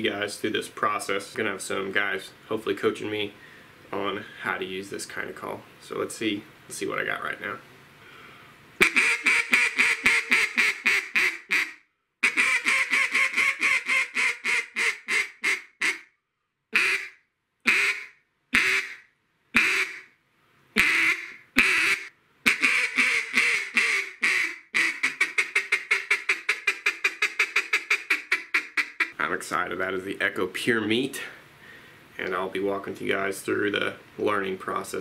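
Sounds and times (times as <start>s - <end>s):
duck call quacks: 8.8s - 16.1s, 16.8s - 19.0s, 19.6s - 20.1s, 20.8s - 29.2s.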